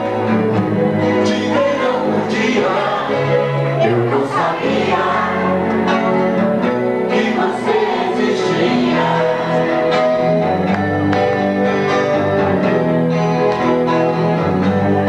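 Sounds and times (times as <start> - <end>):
bass guitar: 0.0 - 15.0
electric guitars: 0.0 - 15.0
person singing: 1.1 - 5.6.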